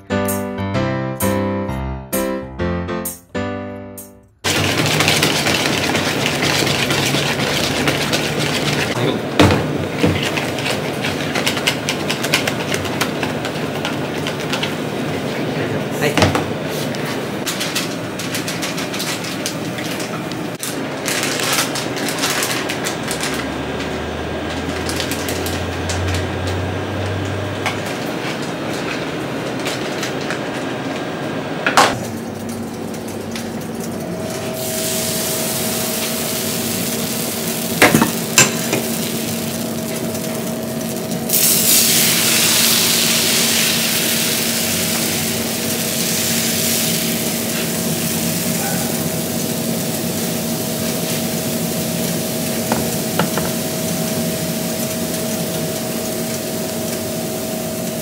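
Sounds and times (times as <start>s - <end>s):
batter sizzling on griddle: 4.4s - 9.0s, 20.6s - 29.9s, 32.2s - 58.0s
whisk scraping plastic bowl: 4.6s - 9.0s.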